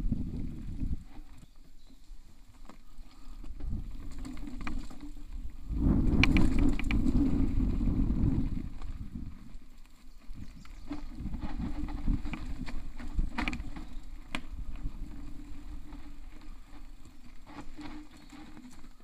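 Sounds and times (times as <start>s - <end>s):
bike tyres rumbling on dirt: 0.0s - 19.0s
bike knocks and clicks: 6.0s - 7.5s.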